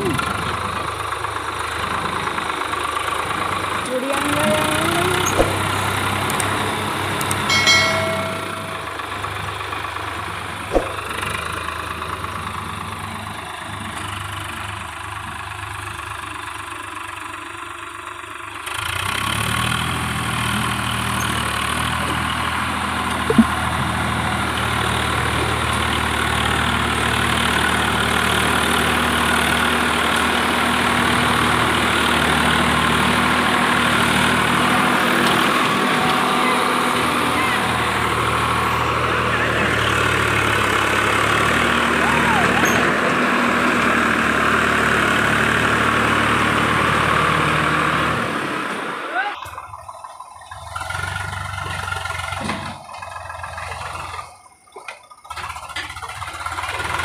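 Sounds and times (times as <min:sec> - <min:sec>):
tractor diesel engine under load: 0:00.0 - 0:57.0
sharp knock: 0:10.7 - 0:11.2.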